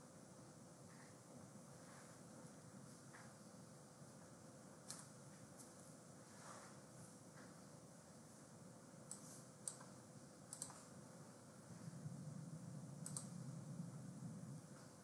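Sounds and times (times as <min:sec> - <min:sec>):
low room hum: 0:00.0 - 0:15.0
computer mouse clicks: 0:04.8 - 0:05.7, 0:09.1 - 0:11.0, 0:13.0 - 0:13.5.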